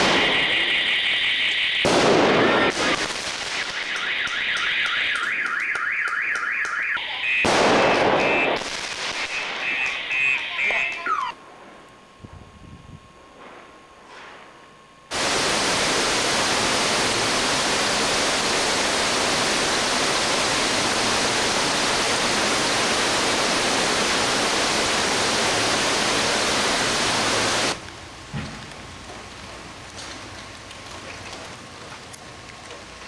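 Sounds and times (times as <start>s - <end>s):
heavy rain pouring: 15.1s - 33.0s.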